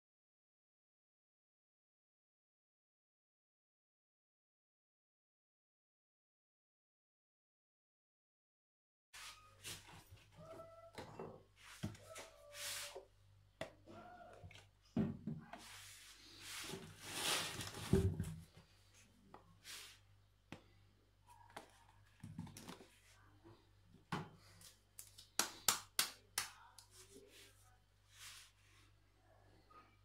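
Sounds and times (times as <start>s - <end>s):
cardboard packages rustling and scraping: 15.6s - 18.6s.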